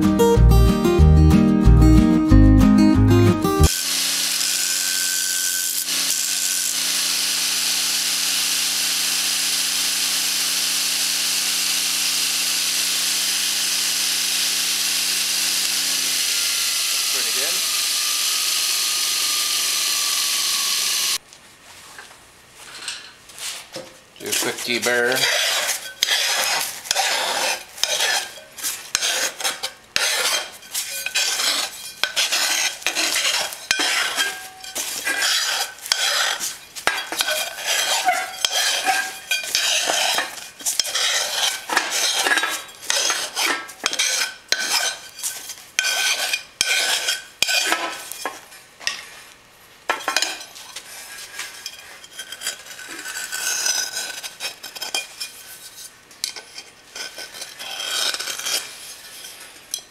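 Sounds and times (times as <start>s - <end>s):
knife scraping thin metal sheet: 24.3s - 48.3s, 50.1s - 59.4s.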